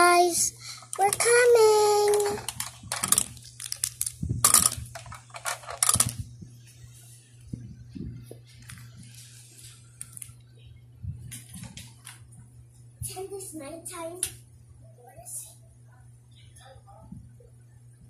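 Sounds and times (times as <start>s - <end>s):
steady low hum: 0.0s - 18.0s
plastic clothespins clicking: 0.8s - 6.2s.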